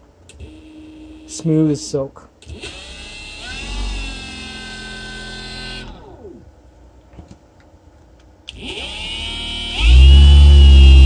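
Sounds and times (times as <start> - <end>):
hub motor whining: 2.5 - 6.4, 8.5 - 11.0.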